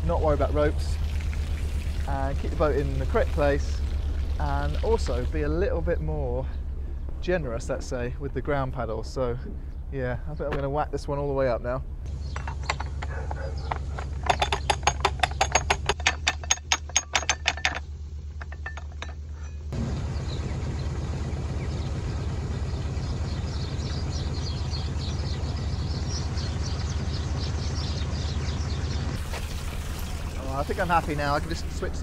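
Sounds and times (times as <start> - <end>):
water rushing into lock: 0.0 - 8.0, 29.2 - 32.0
diesel engine running: 0.0 - 32.0
ratchet clicking: 12.3 - 19.5.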